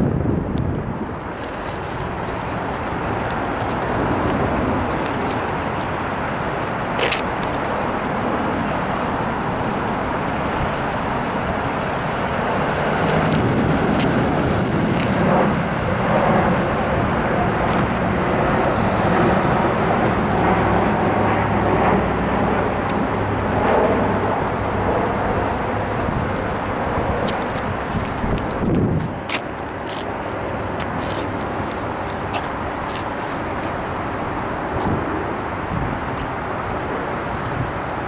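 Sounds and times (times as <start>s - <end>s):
low engine hum: 0.0s - 38.0s
cars driving past: 2.6s - 23.5s.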